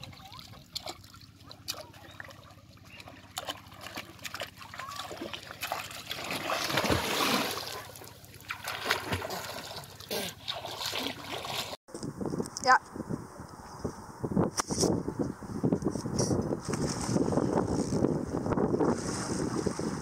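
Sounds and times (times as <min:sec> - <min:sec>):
dribbling water: 0:00.0 - 0:11.8
person splashing into river water: 0:03.1 - 0:11.8.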